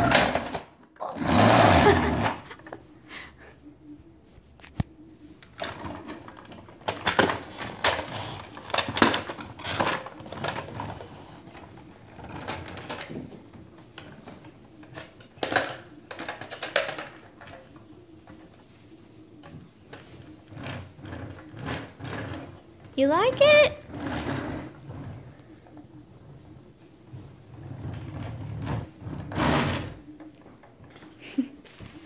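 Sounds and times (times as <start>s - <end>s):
plastic toy clatter and wheel rattle: 5.6s - 18.5s, 19.4s - 25.2s.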